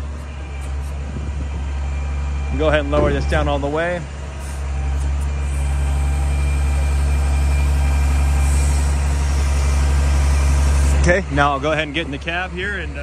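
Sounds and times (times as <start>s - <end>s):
diesel engine humming: 0.0s - 13.0s
high hydraulic whine: 0.0s - 13.0s.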